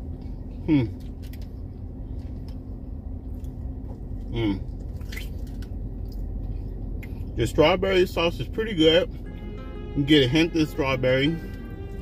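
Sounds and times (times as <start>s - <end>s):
steady low hum: 0.0s - 12.0s
man murmuring while eating: 0.6s - 1.0s.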